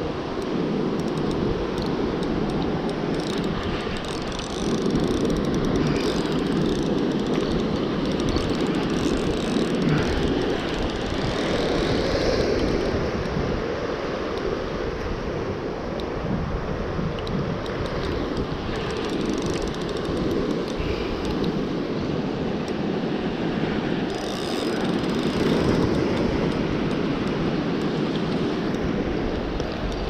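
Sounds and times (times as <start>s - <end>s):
surf washing on rocks: 0.0s - 30.0s
wind buffeting microphone: 0.0s - 30.0s.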